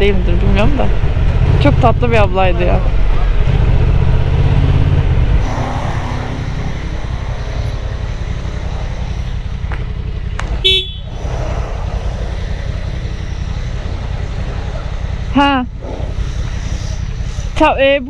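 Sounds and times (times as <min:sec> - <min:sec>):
motorcycle engine rumbling: 0:00.0 - 0:18.0
motorcycle horn toot: 0:10.6 - 0:11.2.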